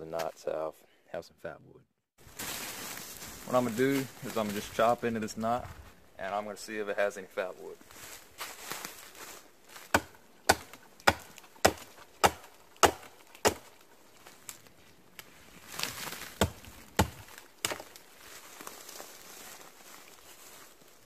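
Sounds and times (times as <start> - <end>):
hatchet chopping wood: 9.9 - 13.8, 16.4 - 17.9.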